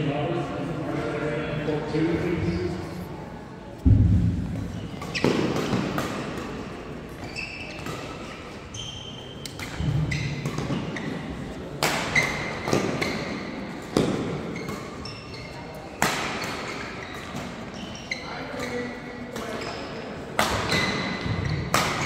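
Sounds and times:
rackets hitting shuttlecock: 3.8s - 8.3s, 11.7s - 15.0s, 16.0s - 17.7s, 18.6s - 22.0s
shoes squeaking on court: 4.7s - 11.5s, 12.2s - 21.8s.

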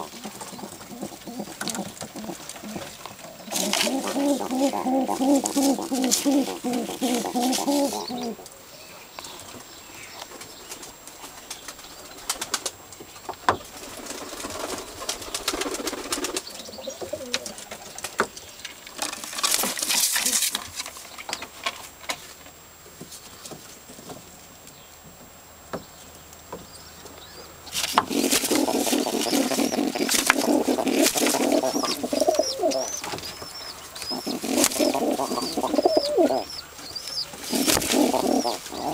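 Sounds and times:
feathers and straw rustling: 0.0s - 8.4s, 27.7s - 33.2s, 37.2s - 38.9s
wings fluttering: 0.0s - 8.4s, 10.7s - 12.8s, 13.6s - 21.1s, 27.7s - 38.9s
pigeons cooing: 0.0s - 8.7s, 14.1s - 18.3s, 27.7s - 38.9s.

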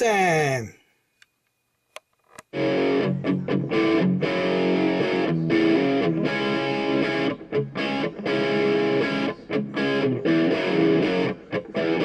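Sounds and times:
distorted electric guitar music: 2.5s - 12.0s.

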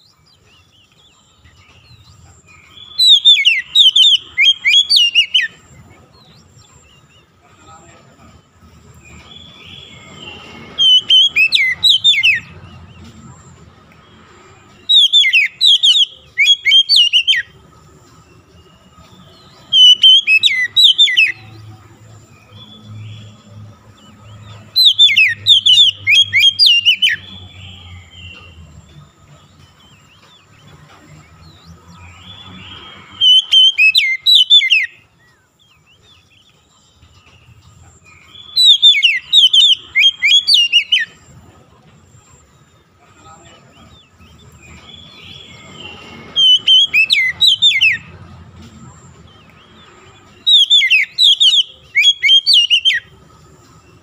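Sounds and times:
bird song phrases: 0.0s - 54.0s.

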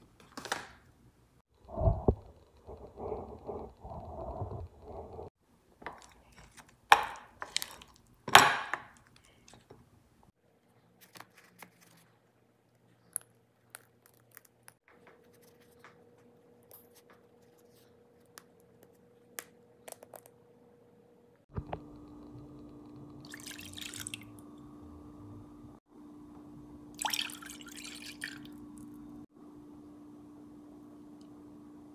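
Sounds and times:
steady low hum: 1.6s - 5.4s
soft wet squishing: 7.4s - 8.2s.

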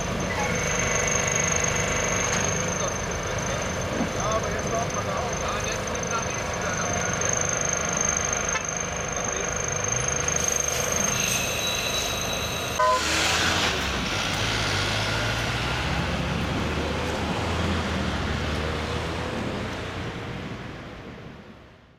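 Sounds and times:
diesel truck engines rumbling: 0.0s - 21.9s
road noise: 0.0s - 21.9s
truck horn toot: 11.1s - 13.5s.

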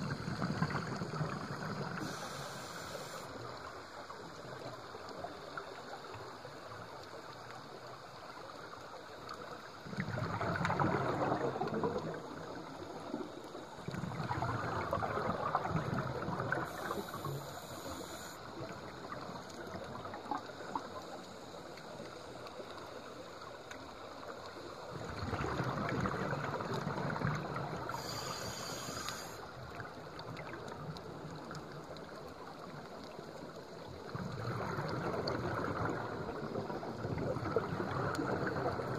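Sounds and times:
exhaled bubbles rumbling: 0.0s - 2.2s, 9.8s - 17.3s, 24.2s - 28.2s, 29.6s - 38.9s
steady water hiss: 0.0s - 38.9s
regulator high hiss: 2.0s - 3.4s, 28.0s - 29.4s.

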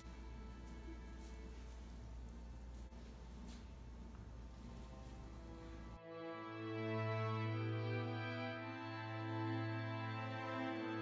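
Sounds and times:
steady low hum: 0.0s - 6.0s
faint background music: 0.0s - 11.0s.

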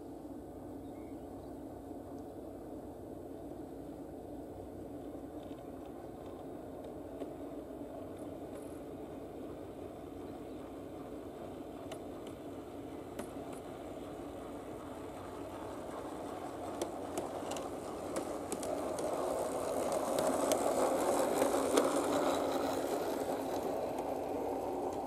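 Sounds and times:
model streetcar motor hum: 0.0s - 25.0s
faint clicks: 5.4s - 7.4s, 11.8s - 12.4s, 13.1s - 13.8s, 15.3s - 25.0s.

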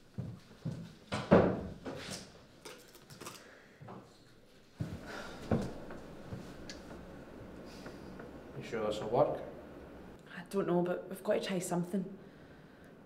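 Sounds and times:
footsteps: 0.1s - 2.2s, 3.8s - 8.4s.

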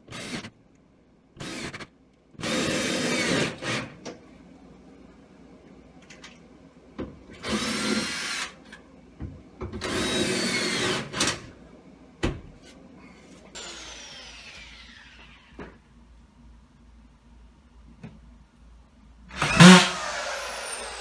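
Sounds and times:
power drill whining: 9.8s - 11.3s, 13.6s - 15.5s, 19.3s - 21.0s.

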